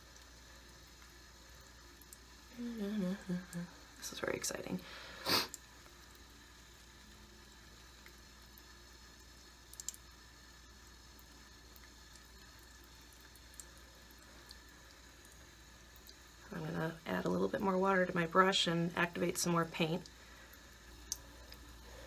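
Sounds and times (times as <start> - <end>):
faint small ticks: 9.7 - 10.1, 20.0 - 21.7.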